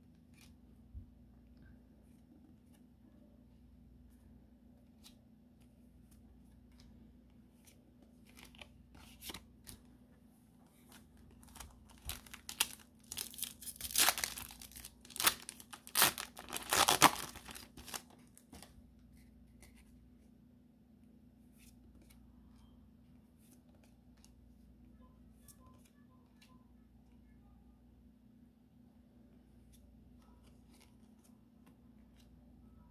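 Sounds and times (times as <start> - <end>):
foil wrapper crinkling and ripping: 11.4 - 18.1.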